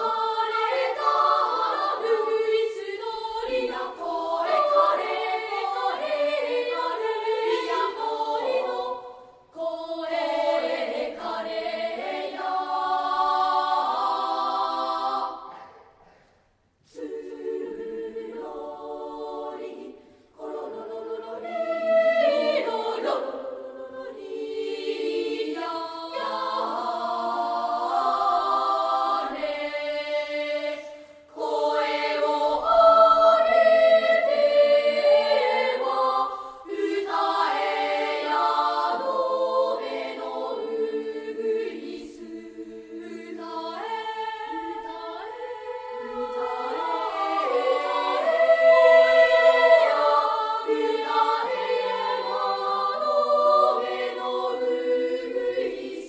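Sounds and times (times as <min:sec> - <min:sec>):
children's choir singing: 0:00.0 - 0:56.0.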